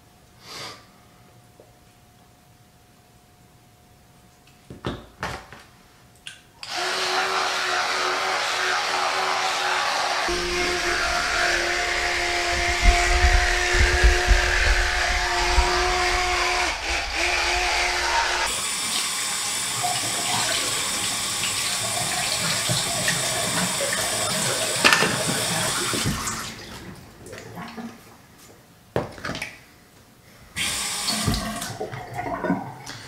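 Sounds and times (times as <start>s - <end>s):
steady low hum: 10.3s - 18.5s
faucet running water into sink: 18.5s - 26.6s, 30.7s - 32.2s.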